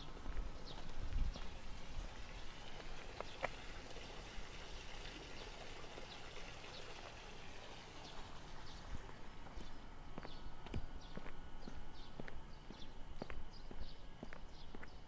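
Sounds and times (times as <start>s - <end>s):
footsteps on paved street: 0.0s - 4.8s, 5.4s - 15.0s
outdoor background hiss: 0.0s - 15.0s.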